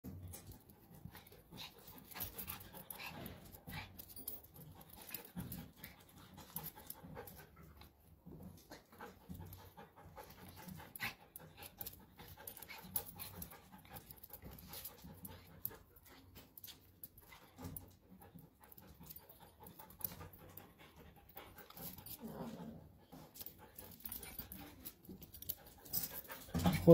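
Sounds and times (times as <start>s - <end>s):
dogs panting: 0.1s - 26.9s.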